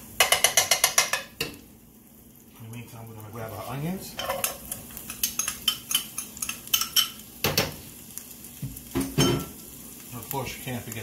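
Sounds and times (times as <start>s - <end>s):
utensils clinking on skillet and dishes: 0.2s - 1.6s, 3.4s - 7.8s, 9.0s - 9.6s
onions dropping into pan: 8.5s - 9.6s.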